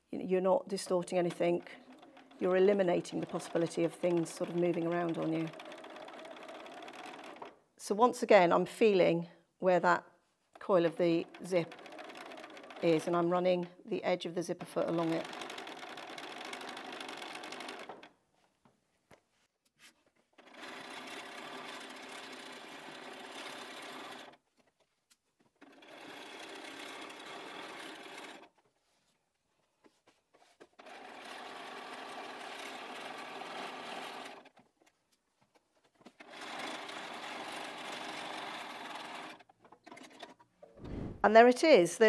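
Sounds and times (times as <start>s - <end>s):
sewing machine stitching: 0.8s - 7.6s, 10.6s - 13.7s, 14.5s - 18.2s, 20.4s - 24.4s, 25.6s - 28.6s, 30.4s - 34.7s, 36.0s - 41.2s.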